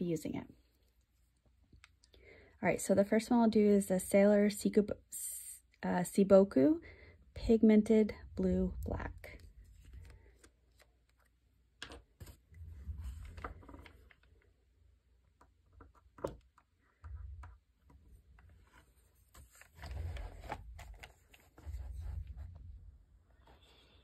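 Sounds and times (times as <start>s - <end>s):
paper rustling: 18.4s - 22.5s.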